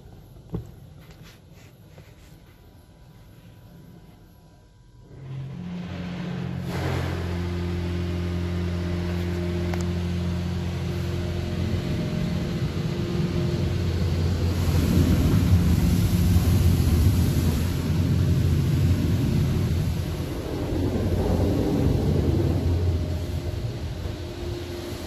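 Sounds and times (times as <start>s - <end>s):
pump machine hum: 5.0s - 25.0s
water jets spraying on car: 5.8s - 25.0s.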